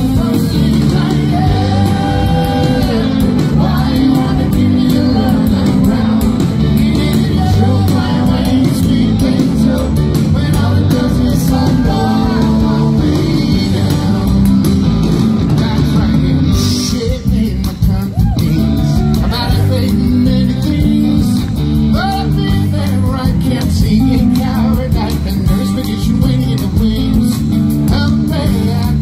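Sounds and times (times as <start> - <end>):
bass guitar: 0.0 - 29.0
drums: 0.0 - 29.0
electric guitar: 0.0 - 29.0
lead vocal: 0.0 - 29.0.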